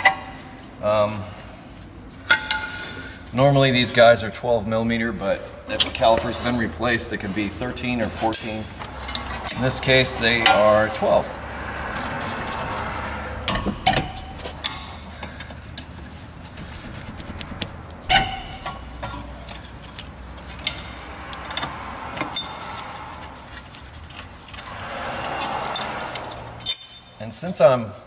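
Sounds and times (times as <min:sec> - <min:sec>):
steady low hum: 0:00.4 - 0:27.2
wrench clinking on metal bolts: 0:08.3 - 0:09.8, 0:25.3 - 0:27.3.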